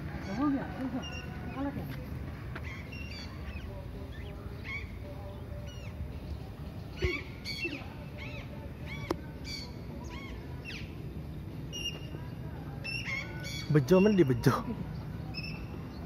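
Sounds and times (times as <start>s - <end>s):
parakeets screeching: 2.6s - 6.0s, 6.9s - 10.9s.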